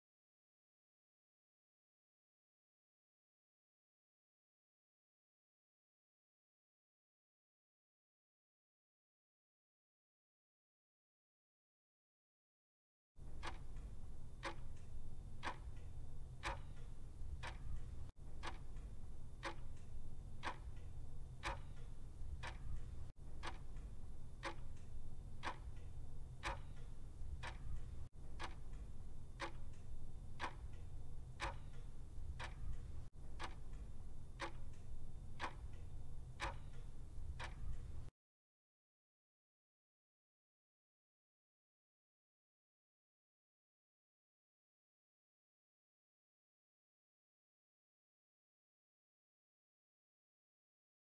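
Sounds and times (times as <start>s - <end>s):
clock-style ticking: 13.2s - 38.1s
low steady hum: 13.2s - 38.1s.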